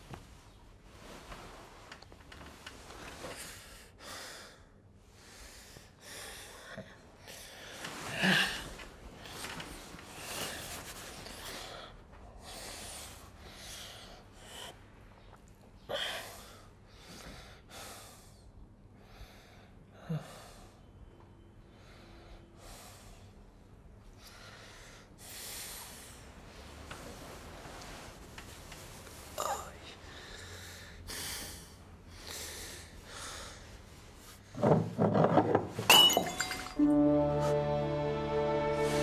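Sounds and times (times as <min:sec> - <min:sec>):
man breathing heavily: 0:03.3 - 0:08.8, 0:29.9 - 0:34.3.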